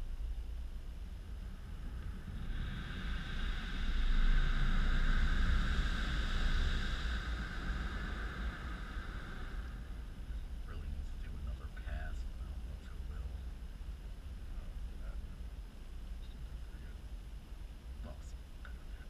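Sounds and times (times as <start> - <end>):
low rumble: 0.0 - 19.0
car wash hissing rush: 1.2 - 19.0.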